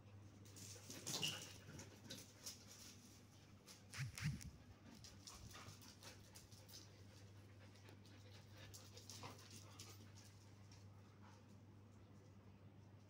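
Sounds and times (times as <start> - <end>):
paws scrabbling on paving stones: 0.4 - 11.6
dogs panting: 4.5 - 11.6.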